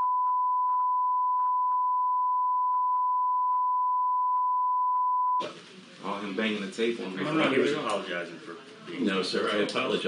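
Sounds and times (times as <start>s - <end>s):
steady pure beep tone: 0.0s - 5.4s.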